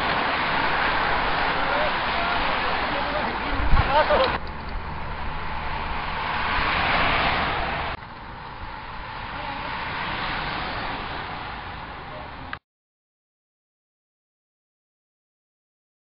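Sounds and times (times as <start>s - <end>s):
cyclists rushing past: 0.0s - 12.6s.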